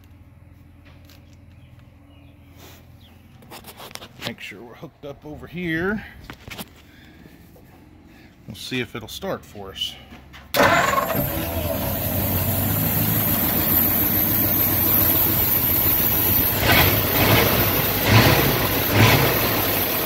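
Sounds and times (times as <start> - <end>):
car engine running and revving: 10.6 - 20.0.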